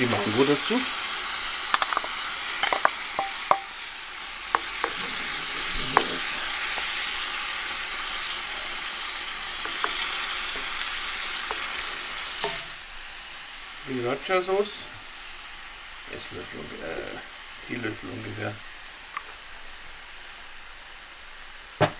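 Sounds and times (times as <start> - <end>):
sauce sizzling in a skillet: 0.0 - 21.9
wooden spoon knocking against pan: 1.8 - 3.7.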